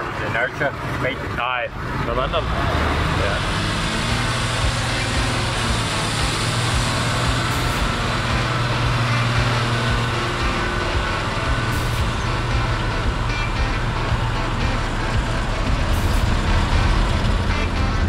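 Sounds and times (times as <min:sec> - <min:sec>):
tractor diesel engine under load: 0:00.0 - 0:18.0.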